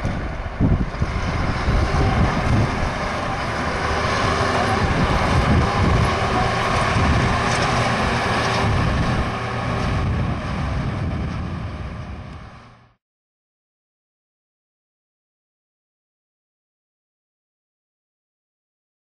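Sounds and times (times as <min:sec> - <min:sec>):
soil compactor diesel engine running: 0:00.0 - 0:13.0.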